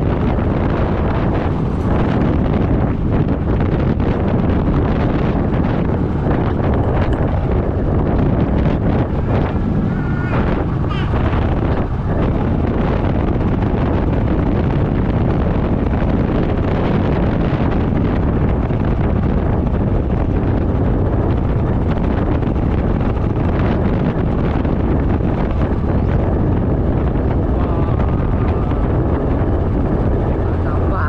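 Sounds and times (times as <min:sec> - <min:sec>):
wind noise on microphone: 0:00.0 - 0:31.0.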